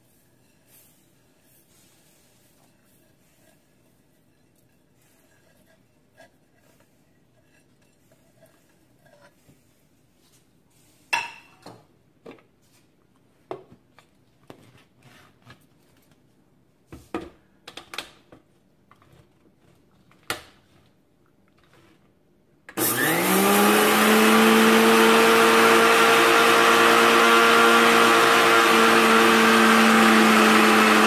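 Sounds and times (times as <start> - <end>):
mixer grinder whining: 22.8 - 31.0.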